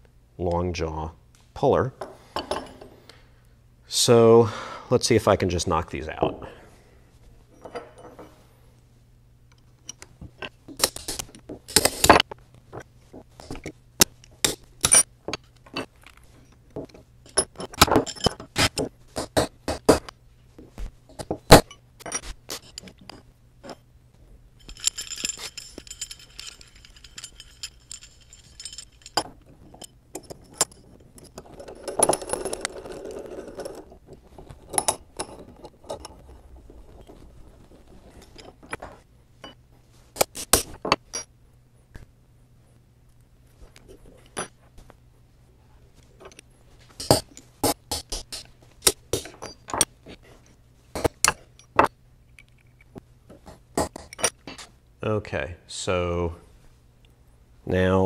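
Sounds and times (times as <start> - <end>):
metal parts clinking: 14.4 - 18.9, 24.6 - 39.6, 46.2 - 47.4, 48.1 - 52.9
metal parts scraping: 17.2 - 18.9, 21.1 - 23.8, 24.6 - 39.6, 46.2 - 51.9.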